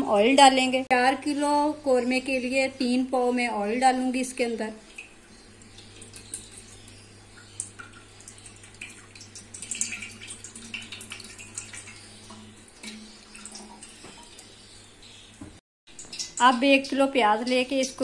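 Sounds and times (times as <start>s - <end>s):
oil crackling in a pot: 3.7s - 18.0s.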